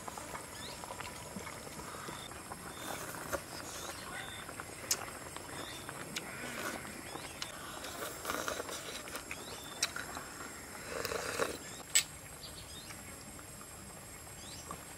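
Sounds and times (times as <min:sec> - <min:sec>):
slurping noodle soup: 0:00.0 - 0:11.8.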